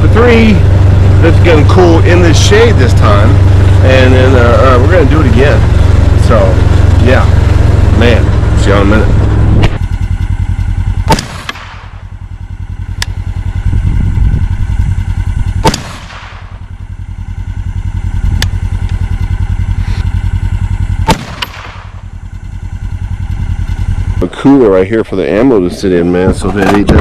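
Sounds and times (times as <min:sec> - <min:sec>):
low rumble: 0:00.0 - 0:27.0
rifle shots with echo: 0:11.1 - 0:12.0, 0:15.6 - 0:16.6, 0:21.0 - 0:22.0.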